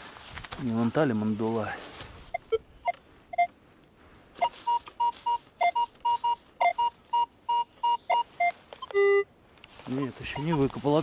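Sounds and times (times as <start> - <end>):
metal detector beeping: 2.3 - 3.5, 4.4 - 9.3, 10.2 - 10.7.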